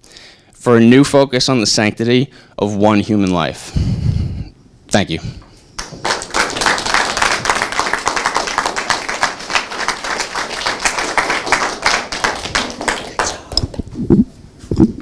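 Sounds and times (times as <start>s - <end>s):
audience applauding: 5.8s - 13.7s.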